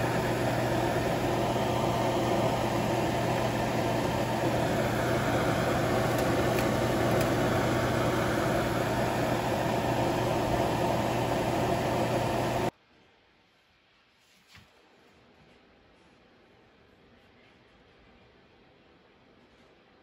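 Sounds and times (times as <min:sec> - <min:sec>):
vent fan rushing air: 0:00.0 - 0:12.7.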